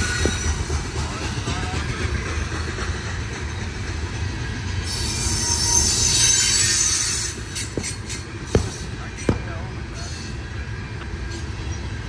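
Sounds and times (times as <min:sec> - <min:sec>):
train wheels rumbling on track: 0:00.0 - 0:12.0
high-pitched wheel squeal: 0:04.8 - 0:08.3.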